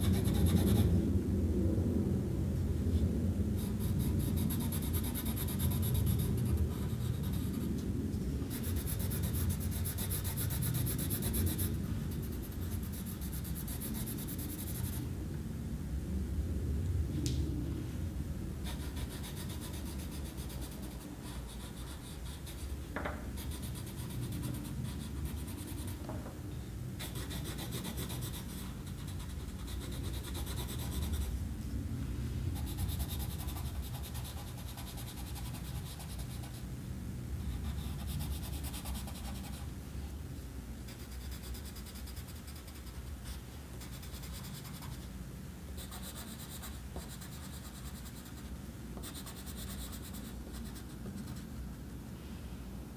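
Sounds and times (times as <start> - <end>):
low steady rumble: 0.0 - 52.9.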